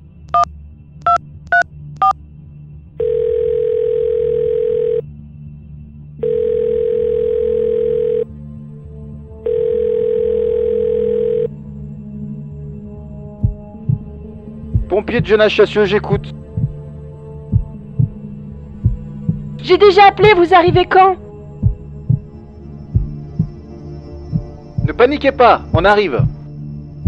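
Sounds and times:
low background music: 0.0s - 27.0s
telephone ringback tone: 3.0s - 5.0s, 6.2s - 8.3s, 9.4s - 11.5s.

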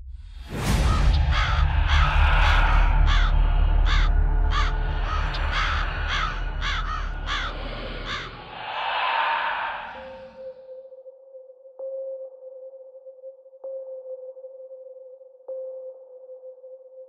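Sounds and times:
crows cawing: 0.8s - 10.5s
deep low rumble: 1.6s - 10.4s.

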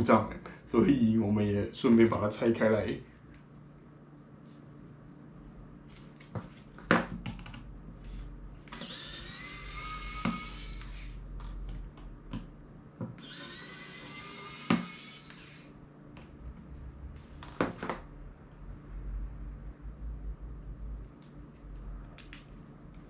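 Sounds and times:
electric screwdriver whirring: 8.7s - 11.2s, 13.2s - 15.7s.

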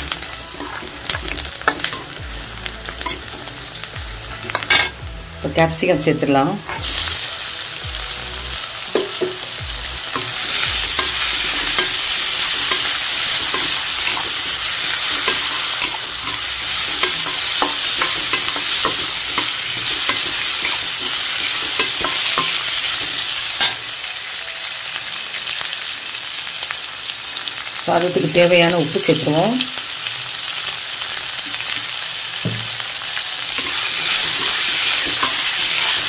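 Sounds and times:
vegetables sizzling in hot oil: 0.0s - 36.0s
sharp metal clink: 23.6s - 23.9s.

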